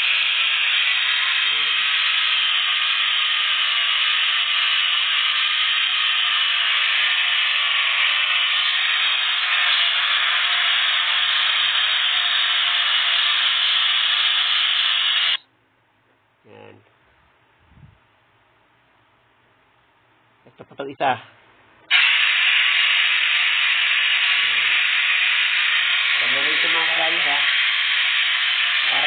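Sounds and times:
angle grinder polishing steel tube: 0.0 - 15.4, 21.9 - 29.0.

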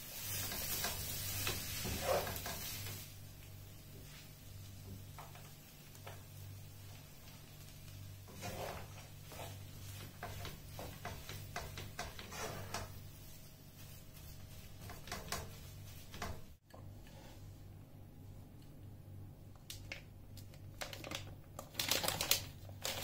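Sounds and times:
spatula scraping frying pan: 0.0 - 3.0, 8.2 - 16.5.

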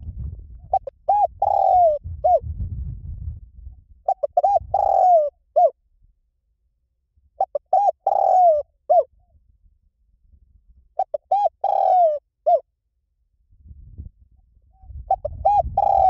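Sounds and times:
dove cooing: 0.6 - 2.5, 4.0 - 5.8, 7.4 - 9.1, 11.0 - 12.6, 14.8 - 16.0.

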